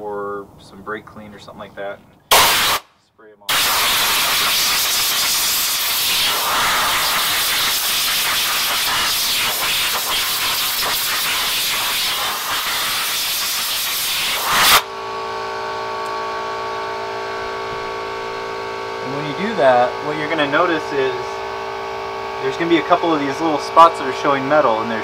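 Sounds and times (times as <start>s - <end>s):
steady multi-pitch hum: 1.8s - 25.0s
compressed air blow gun hissing: 2.3s - 2.9s, 3.5s - 14.8s.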